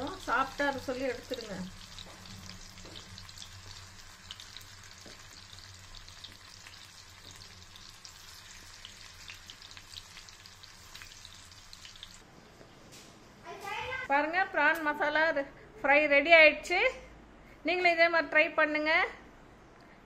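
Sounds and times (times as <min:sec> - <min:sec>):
prawns deep-frying in oil: 0:00.0 - 0:12.2.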